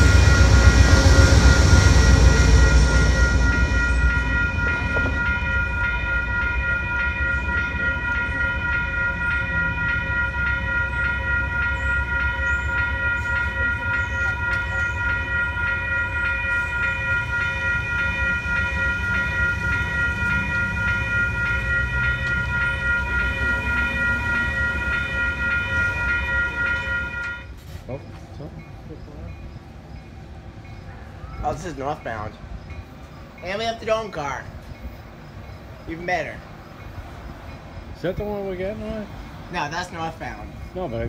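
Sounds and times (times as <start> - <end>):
railroad crossing bells ringing: 0.0 - 41.0.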